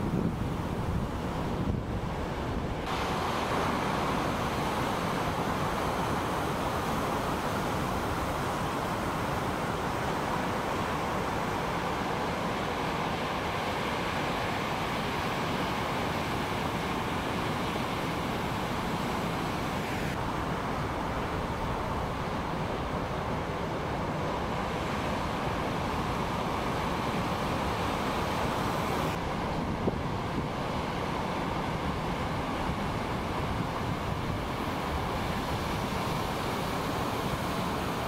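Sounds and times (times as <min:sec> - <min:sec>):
wind noise on microphone: 0:00.0 - 0:03.3, 0:24.7 - 0:38.0
ocean surf breaking: 0:00.0 - 0:38.0.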